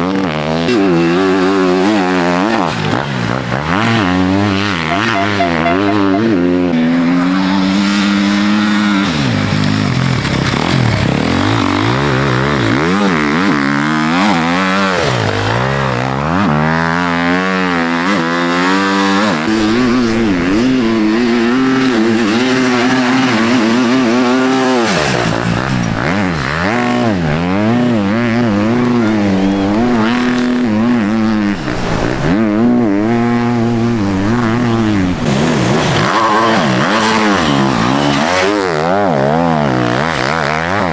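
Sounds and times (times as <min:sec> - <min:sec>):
dirt bike engines revving: 0:00.0 - 0:40.9.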